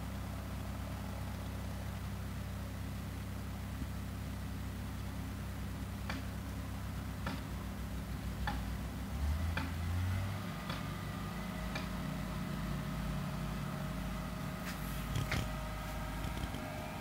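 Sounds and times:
distant machinery hum: 0:00.0 - 0:17.0
regular clicks: 0:07.2 - 0:07.6, 0:08.4 - 0:08.7, 0:09.5 - 0:09.8, 0:10.6 - 0:10.9, 0:11.7 - 0:12.0.

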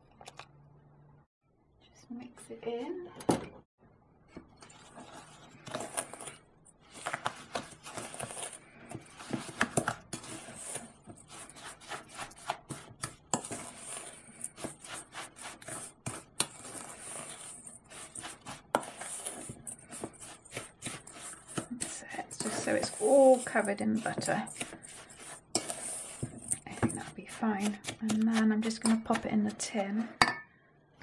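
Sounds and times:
spoon scraping metal bowl: 0:04.6 - 0:30.5.

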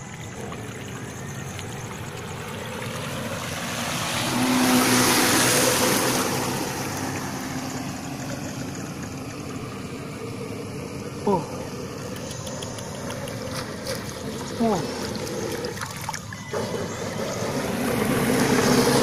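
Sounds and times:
hiss of boat wake: 0:00.0 - 0:12.2
model boat electric motors: 0:00.0 - 0:19.0.

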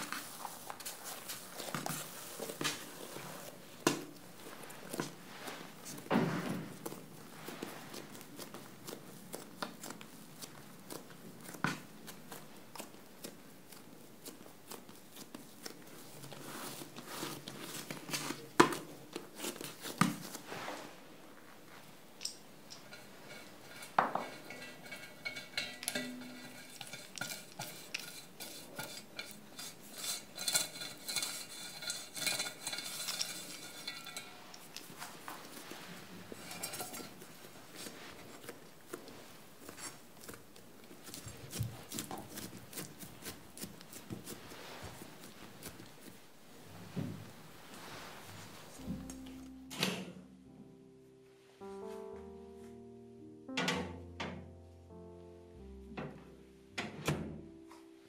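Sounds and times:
pastry brush scraping metal pan: 0:00.0 - 0:03.7, 0:15.0 - 0:21.0, 0:22.8 - 0:46.2
hands rolling dough on countertop: 0:00.0 - 0:49.5.

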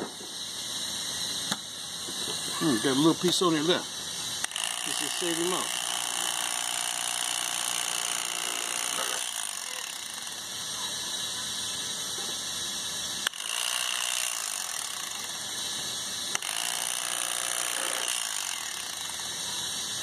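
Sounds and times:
electric knife running: 0:02.2 - 0:20.0.

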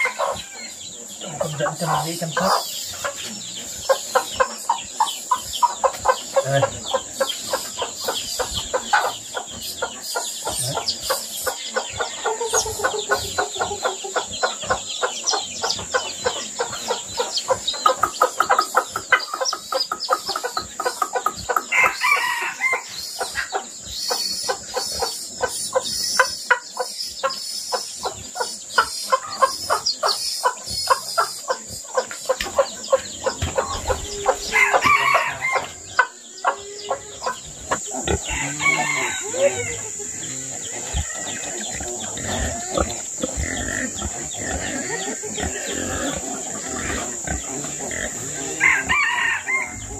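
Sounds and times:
chicks peeping: 0:00.0 - 0:49.9
hen clucking: 0:00.0 - 0:49.9
rooster crowing: 0:21.7 - 0:22.9, 0:33.9 - 0:35.8, 0:38.2 - 0:40.0, 0:48.5 - 0:49.9.

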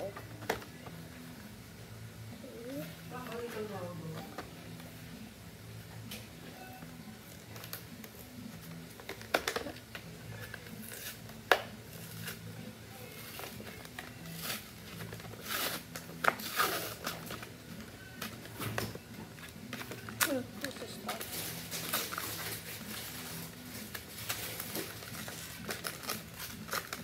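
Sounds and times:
plastic blister pack crinkling: 0:19.4 - 0:27.0.

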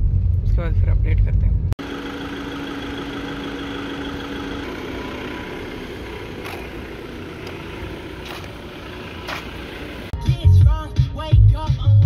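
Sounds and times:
steady outdoor hiss: 0:01.8 - 0:10.1
car engine idling: 0:01.8 - 0:10.2.

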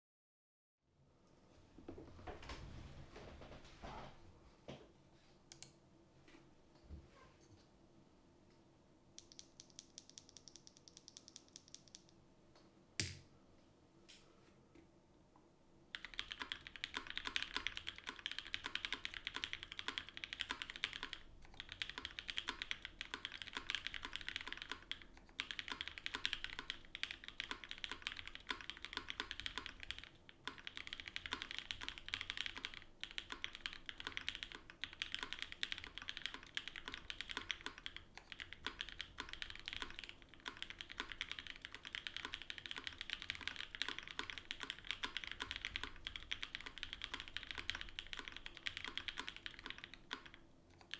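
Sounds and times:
fast mechanical keyboard typing: 0:09.2 - 0:12.1, 0:15.9 - 0:50.9.

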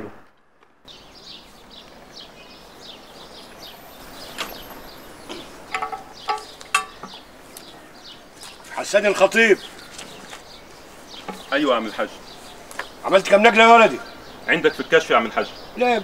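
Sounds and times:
small birds chirping: 0:00.5 - 0:16.0.

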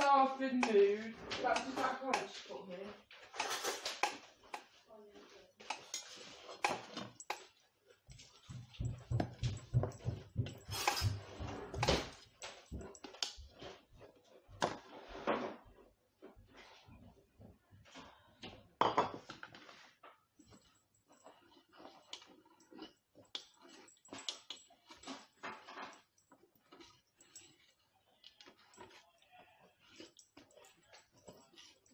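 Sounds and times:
whisk scraping metal bowl: 0:00.0 - 0:02.5
kitchen clatter: 0:03.2 - 0:04.6, 0:08.5 - 0:13.3.

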